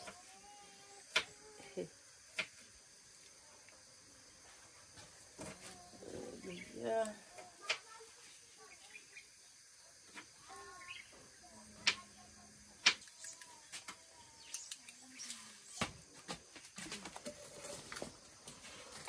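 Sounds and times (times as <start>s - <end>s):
birds chirping: 6.0s - 7.2s, 10.5s - 11.4s, 13.0s - 16.0s.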